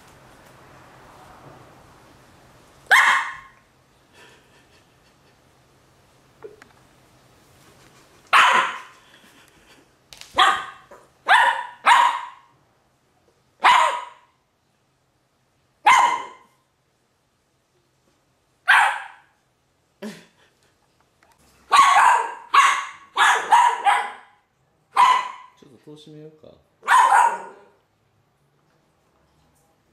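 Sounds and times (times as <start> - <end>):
dog barking: 2.9 - 3.6, 8.3 - 8.9, 10.4 - 12.5, 13.6 - 14.4, 15.8 - 16.6, 18.6 - 19.4, 21.7 - 25.6, 26.8 - 27.8.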